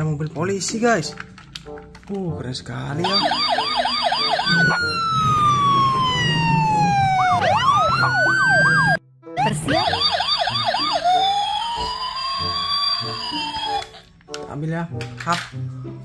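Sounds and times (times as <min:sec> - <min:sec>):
electronic police siren: 0:03.0 - 0:14.1.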